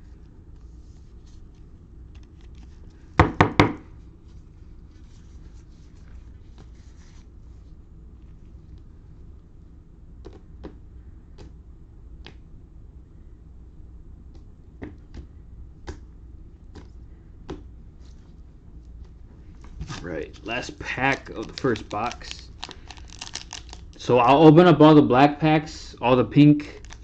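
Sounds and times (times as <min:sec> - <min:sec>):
cards rustling: 0:00.8 - 0:03.2, 0:04.2 - 0:08.4, 0:19.0 - 0:24.5, 0:26.0 - 0:27.0.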